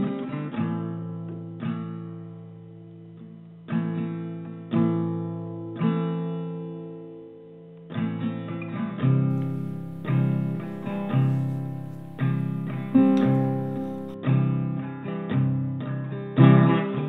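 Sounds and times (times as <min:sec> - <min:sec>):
guitar chords ringing: 0:09.3 - 0:14.2.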